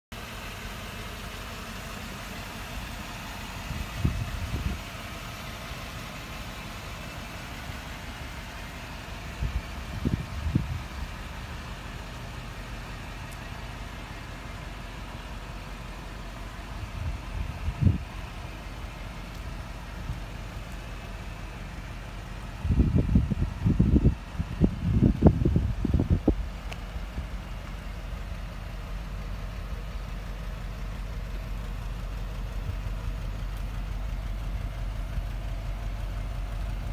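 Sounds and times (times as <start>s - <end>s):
car engine idling: 0.1s - 36.9s
wind buffeting microphone: 3.6s - 4.9s, 9.4s - 11.2s, 16.8s - 18.3s, 22.6s - 26.6s.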